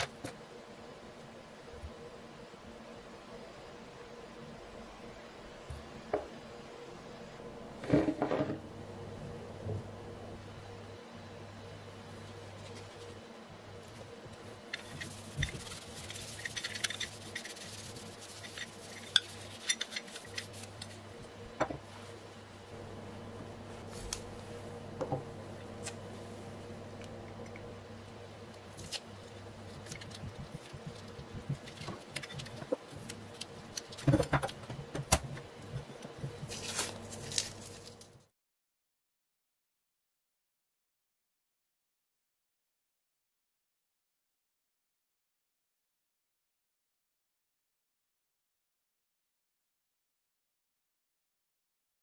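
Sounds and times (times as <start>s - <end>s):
paper towel rubbing on metal: 14.7s - 21.0s.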